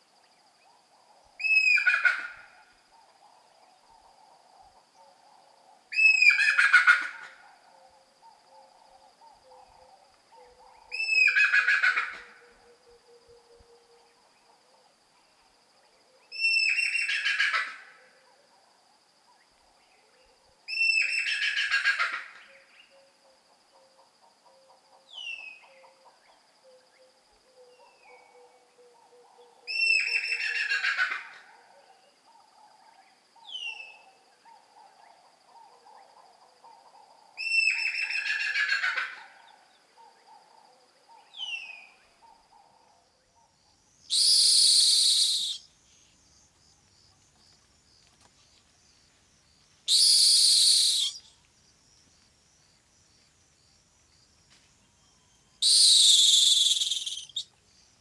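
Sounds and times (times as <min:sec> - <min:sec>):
short falling whistles: 0:44.1 - 0:45.7, 0:49.9 - 0:51.3, 0:55.6 - 0:57.5.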